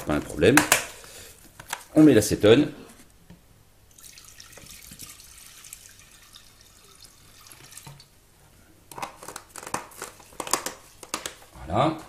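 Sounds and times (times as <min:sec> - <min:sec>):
liquid trickling into glass: 0:03.9 - 0:08.1.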